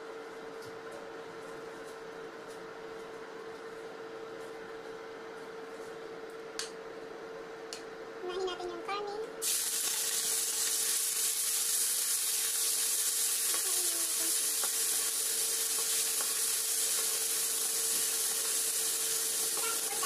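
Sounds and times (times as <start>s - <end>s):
meat sizzling in hot oil: 9.4s - 20.0s.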